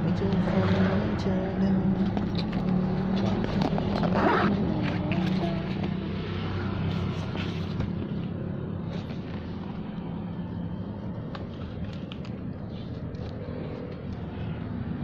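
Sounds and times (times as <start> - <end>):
vehicle engine humming: 0.0 - 15.0
faint clicks and rustles: 11.1 - 14.6.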